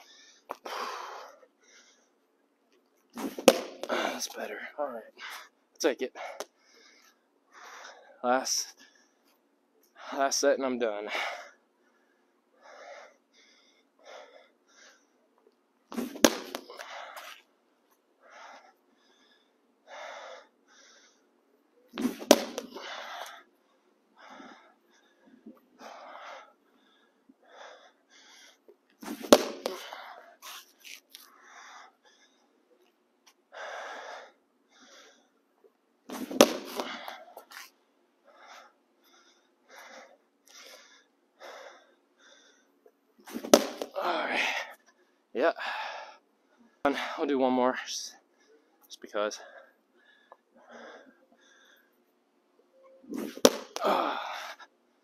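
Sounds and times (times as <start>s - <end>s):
short breaths: 0.0s - 2.2s, 18.2s - 32.7s, 36.2s - 47.2s, 49.4s - 52.1s
ball smacking wall: 3.2s - 4.2s, 15.9s - 16.8s, 22.0s - 22.8s, 29.0s - 29.9s, 36.1s - 37.0s, 43.3s - 44.0s, 53.2s - 53.9s.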